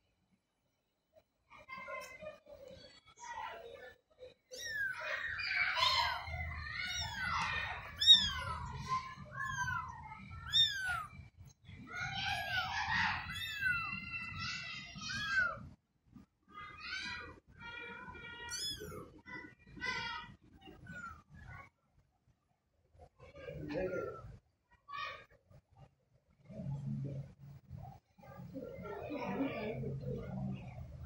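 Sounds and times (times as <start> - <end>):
kittens mewing: 4.5 - 11.3, 12.0 - 14.4, 15.0 - 15.6, 18.5 - 19.1.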